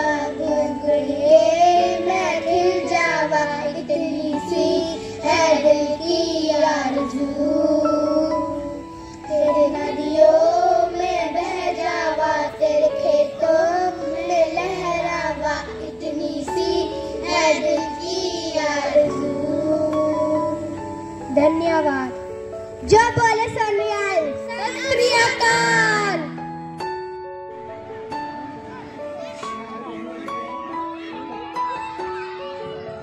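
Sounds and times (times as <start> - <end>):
boys singing into a microphone: 0.0 - 8.6
instrumental backing music: 0.0 - 33.0.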